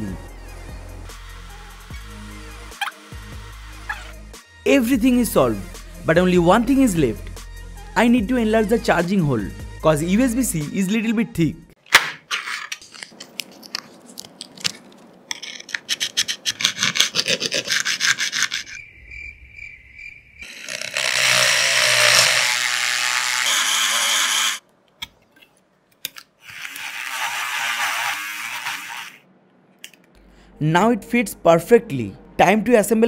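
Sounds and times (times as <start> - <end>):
rotary tool grinding metal: 1.2 - 4.3, 15.4 - 18.8, 20.4 - 24.6, 26.4 - 29.2.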